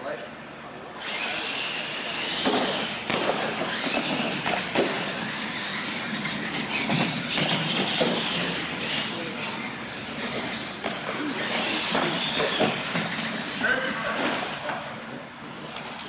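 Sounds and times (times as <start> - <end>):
electric motors and gears whining: 0.4 - 16.0.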